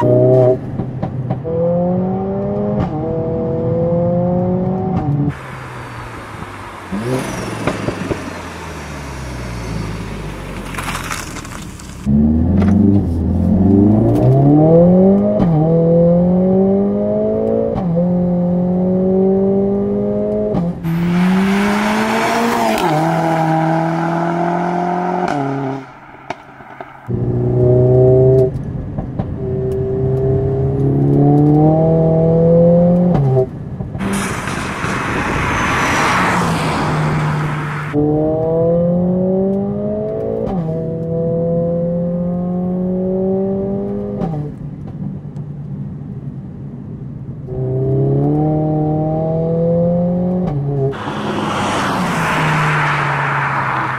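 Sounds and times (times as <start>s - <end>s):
car engine accelerating through gears: 0.0s - 44.6s, 47.4s - 53.9s
loud rushing noise: 34.0s - 38.0s, 50.9s - 53.9s.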